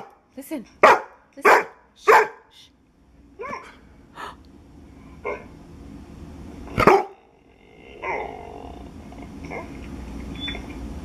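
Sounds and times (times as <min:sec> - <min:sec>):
puppy barks and whines from speakers: 0:00.8 - 0:02.4, 0:03.4 - 0:03.8, 0:05.2 - 0:05.5, 0:06.8 - 0:07.2.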